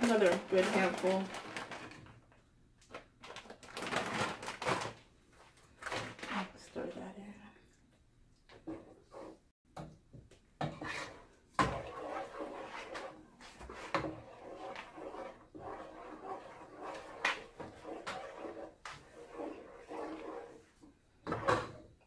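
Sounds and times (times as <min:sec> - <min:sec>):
wooden spoon scraping a pot: 0:08.5 - 0:09.5, 0:10.6 - 0:21.9.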